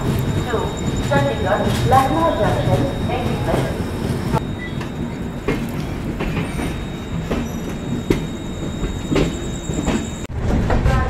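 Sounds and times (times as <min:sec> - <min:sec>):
wheels clacking over rail joints: 0:00.0 - 0:10.3
train rumble: 0:00.0 - 0:11.0.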